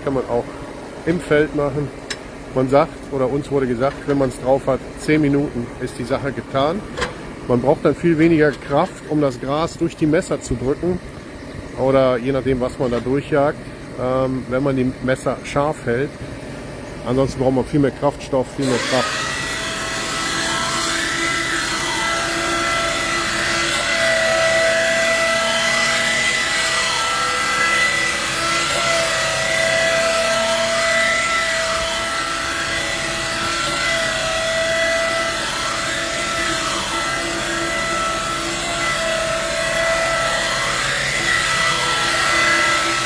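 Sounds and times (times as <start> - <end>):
knife grinder whining: 18.3 - 43.0.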